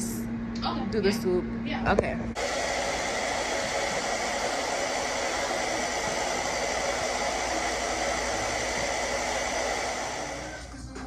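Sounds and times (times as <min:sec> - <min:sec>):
hair dryer blowing: 0:02.3 - 0:11.0.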